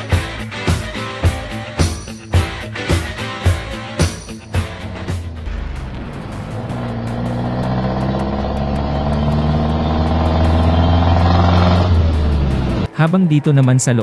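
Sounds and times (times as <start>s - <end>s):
vehicle engine droning: 4.5s - 12.9s.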